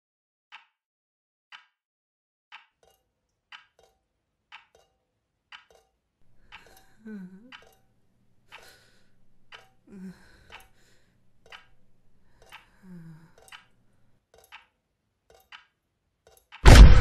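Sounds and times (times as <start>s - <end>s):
clock ticking: 1.5s - 1.7s, 2.5s - 8.8s, 9.4s - 10.8s, 11.4s - 16.8s.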